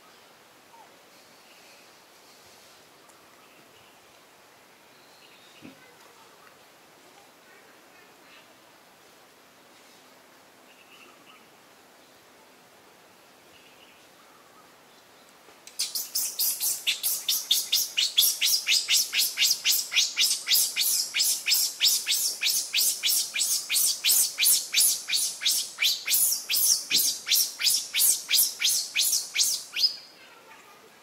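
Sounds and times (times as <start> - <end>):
high-pitched chirping call: 15.7 - 30.1.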